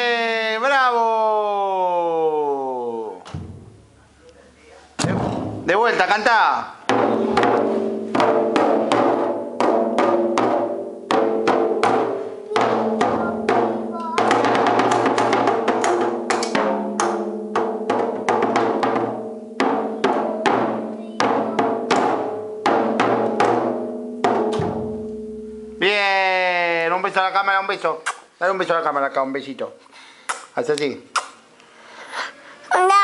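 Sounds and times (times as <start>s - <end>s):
drum toms struck with sticks: 3.3s - 3.9s, 5.0s - 6.0s, 6.8s - 26.0s.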